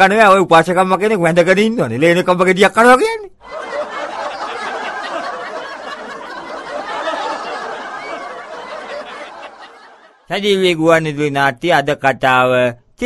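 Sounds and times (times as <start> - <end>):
crowd laughing: 3.4 - 10.3.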